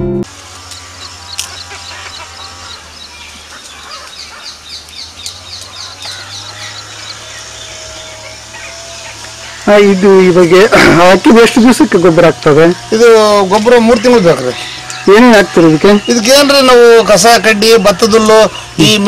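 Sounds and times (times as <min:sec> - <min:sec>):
bird chirping: 0:00.6 - 0:19.0.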